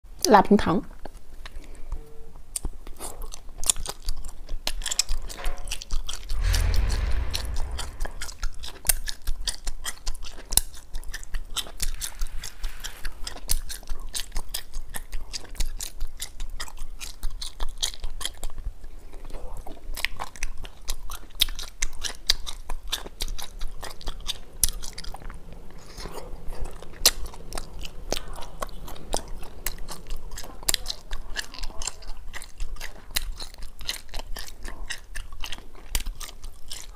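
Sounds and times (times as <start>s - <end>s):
dull low thump: 5.3s - 8.7s.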